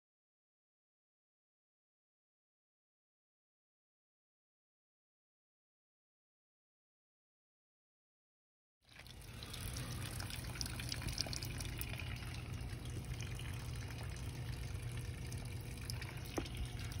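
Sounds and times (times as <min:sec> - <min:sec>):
hose water running into bucket: 0:08.9 - 0:17.0
small clicks and splashes: 0:08.9 - 0:17.0.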